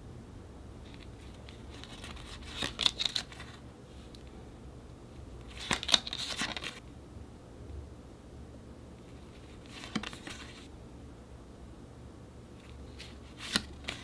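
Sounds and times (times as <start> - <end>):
packaging crinkling and rustling: 0.8 - 3.6, 5.5 - 6.8.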